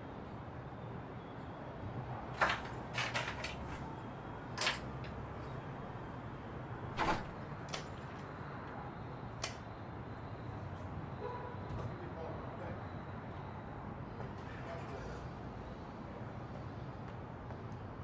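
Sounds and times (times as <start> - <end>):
padlock clicking and rattling: 4.5 - 5.2.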